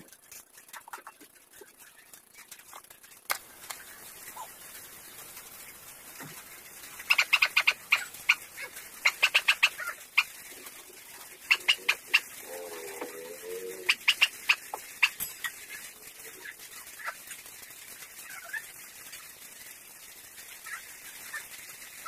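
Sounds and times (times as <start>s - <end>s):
animal chirping: 7.0s - 10.4s, 11.4s - 17.2s.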